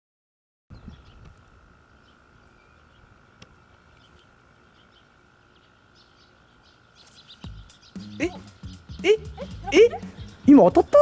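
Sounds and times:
bird chirps: 0.7 - 11.0.

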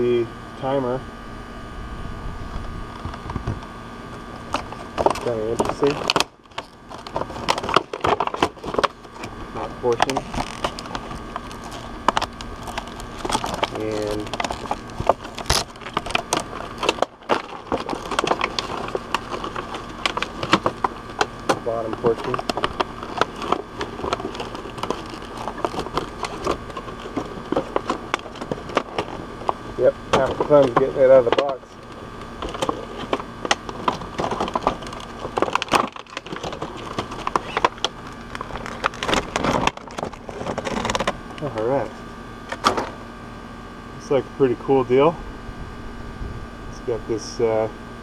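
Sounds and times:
plastic packaging crackling: 4.2 - 41.9.

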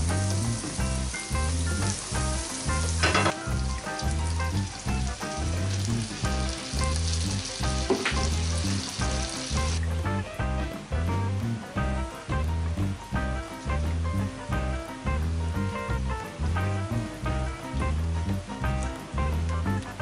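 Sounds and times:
butter and garlic sizzling in a pan: 0.0 - 10.1
background music with bass beat: 0.0 - 20.0.

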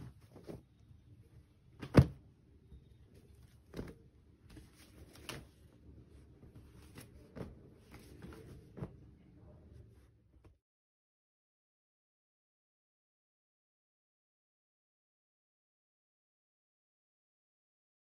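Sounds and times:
cloth rustling: 3.2 - 9.2.

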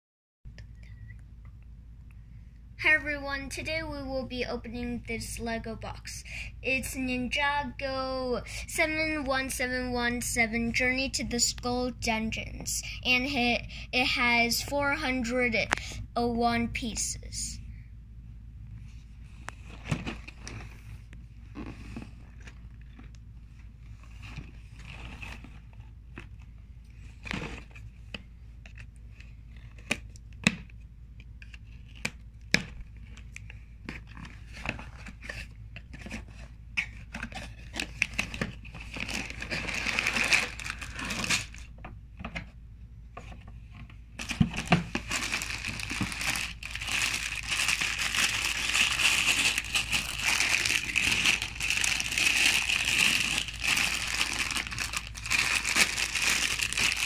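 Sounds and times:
plastic bags crinkling: 37.2 - 41.7, 44.2 - 57.0.

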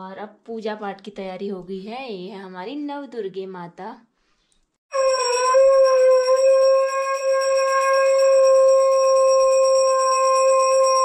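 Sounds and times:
conch shell blown: 4.9 - 11.0.

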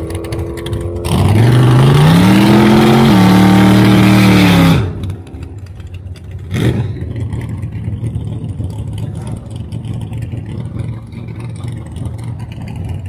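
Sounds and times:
loud engine burst: 0.0 - 5.3
car engine running low: 0.0 - 13.0.

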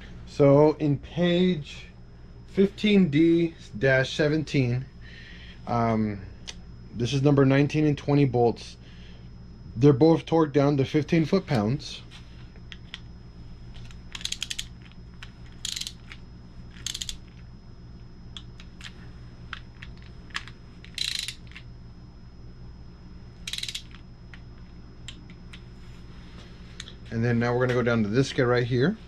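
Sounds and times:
socket ratchet clicking: 14.1 - 14.9, 15.5 - 17.4, 19.5 - 21.6, 23.5 - 24.0.

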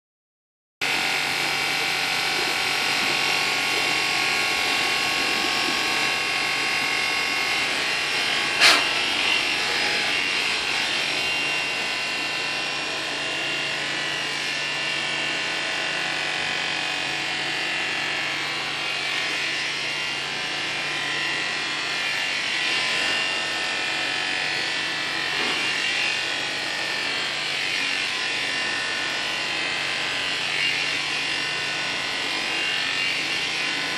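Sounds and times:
electric clippers buzzing: 0.8 - 33.9.

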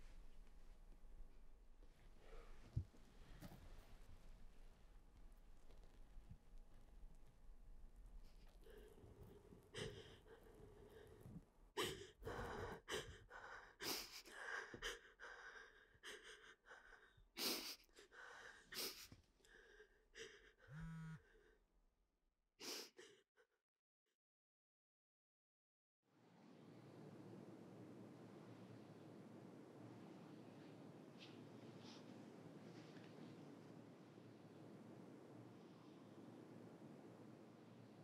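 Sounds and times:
person breathing and gasping: 8.6 - 21.5.

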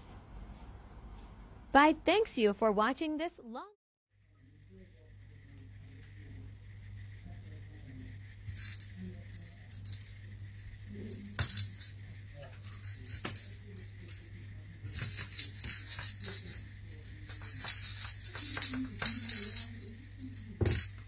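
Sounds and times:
faint low hum: 4.2 - 21.0
small jingle bell jingling: 8.5 - 21.0.

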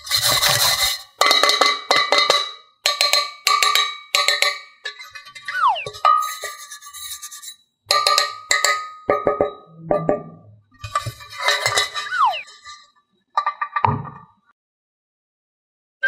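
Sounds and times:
falling whistle-like tones: 5.5 - 6.1, 12.0 - 12.5.

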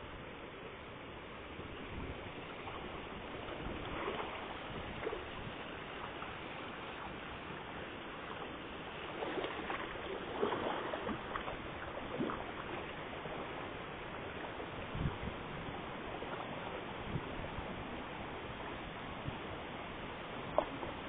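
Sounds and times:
steady background hiss: 0.0 - 21.0
fish splashing water: 8.4 - 13.5.

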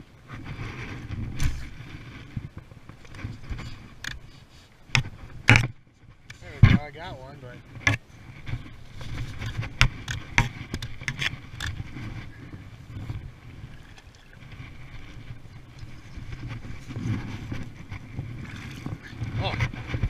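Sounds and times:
water sloshing and splashing: 7.6 - 20.0.

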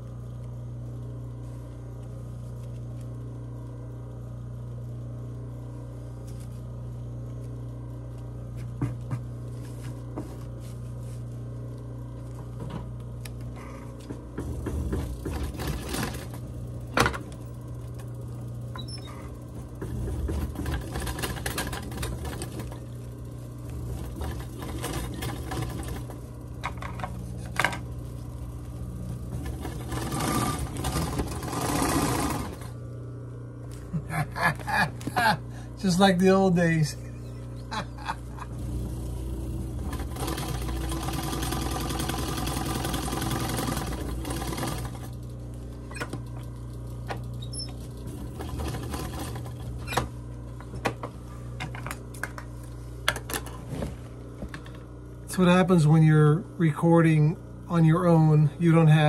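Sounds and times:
motor humming: 11.2 - 56.3
sewing machine stitching: 14.4 - 17.1, 18.8 - 22.9, 23.7 - 26.2, 29.3 - 32.7, 38.6 - 45.2, 47.1 - 50.1.

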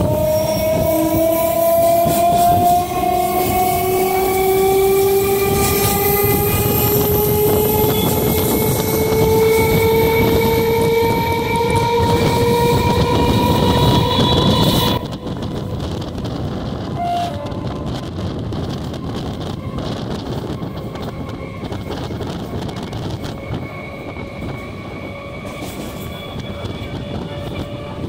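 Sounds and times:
train running noise: 0.0 - 28.0
train traction motors whining: 0.0 - 28.0.

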